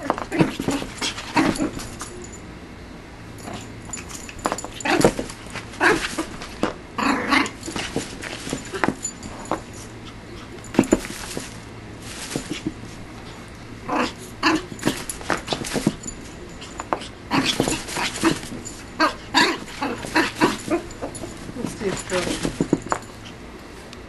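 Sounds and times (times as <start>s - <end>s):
puppy scuffling against playpen: 3.5s - 13.4s, 14.6s - 23.2s.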